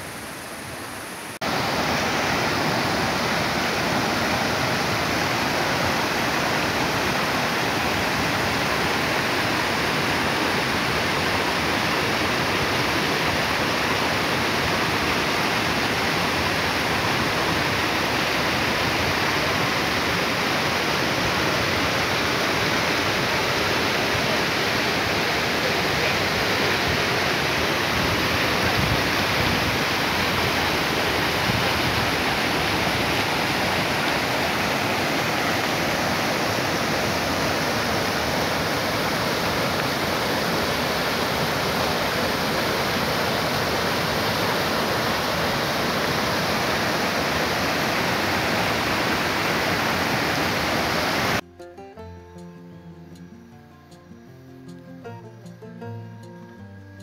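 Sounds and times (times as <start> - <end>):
waterfall pouring onto rocks: 1.4 - 51.4.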